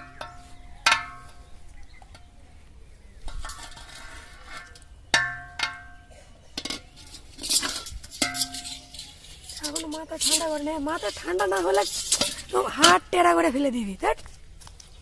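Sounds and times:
metal pot clanking: 0.0s - 1.5s, 3.2s - 13.1s.

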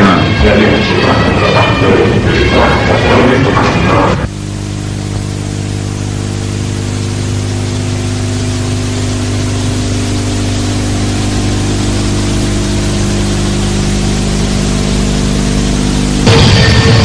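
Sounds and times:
music: 0.0s - 4.3s, 16.1s - 17.0s
low drone of fixed pitches: 0.0s - 17.0s.

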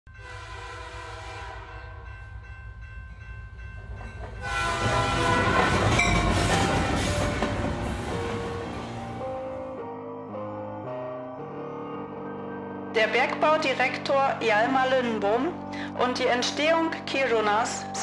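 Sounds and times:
train horn: 0.1s - 2.1s, 4.4s - 9.1s
train passing with rattling wheels: 1.6s - 9.7s.

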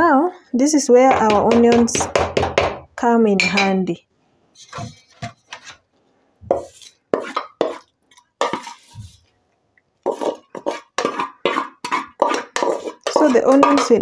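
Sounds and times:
metal bowl knocking on pot: 1.1s - 3.8s, 12.2s - 14.0s.

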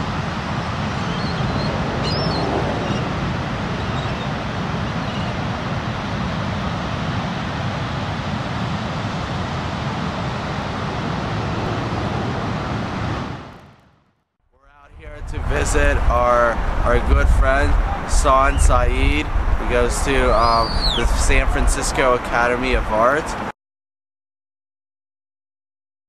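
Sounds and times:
ocean surf: 0.0s - 13.8s, 15.1s - 23.5s
wind buffeting microphone: 0.0s - 13.8s, 14.9s - 23.1s
faint high bird calls: 1.0s - 3.1s, 3.8s - 4.3s, 5.0s - 5.4s, 20.3s - 21.0s.

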